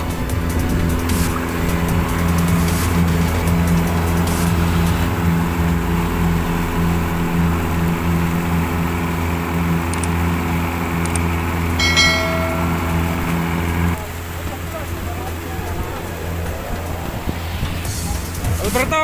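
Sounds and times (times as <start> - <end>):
outboard motor running: 0.0 - 16.5
short chime: 11.8 - 13.4.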